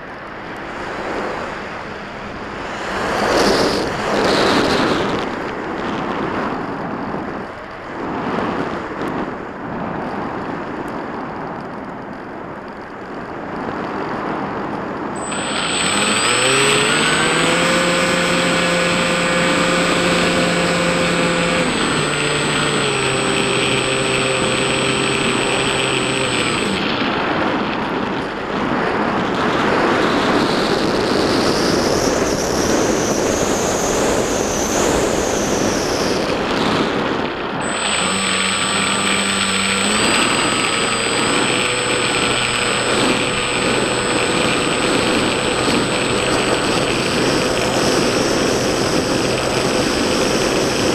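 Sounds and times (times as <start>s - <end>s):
electric motor whine: 15.2s - 29.0s, 29.6s - 50.9s.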